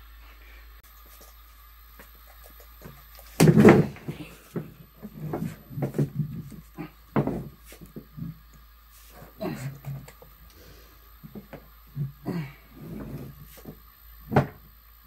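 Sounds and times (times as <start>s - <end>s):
irregular knocks and bumps: 2.4s - 8.4s, 13.0s - 14.6s.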